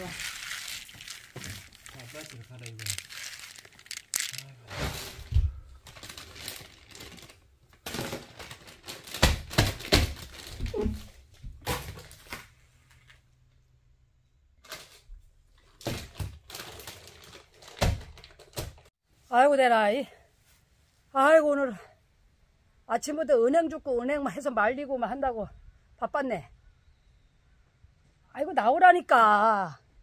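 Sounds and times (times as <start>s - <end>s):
plastic bag crinkling and rustling: 0.0s - 11.0s, 15.7s - 18.9s
nuts clicking together: 0.2s - 4.5s.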